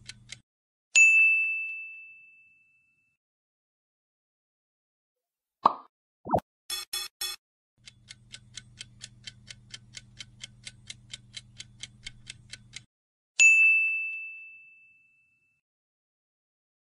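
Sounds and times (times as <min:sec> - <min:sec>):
clock ticking: 0:00.0 - 0:00.4, 0:07.8 - 0:12.9.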